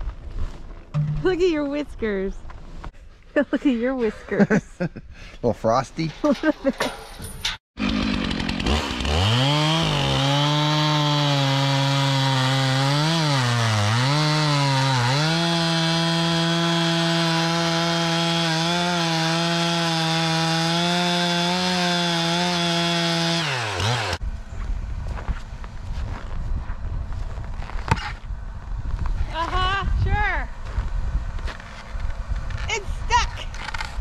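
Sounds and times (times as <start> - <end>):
chainsaw cutting through log: 7.8 - 24.2.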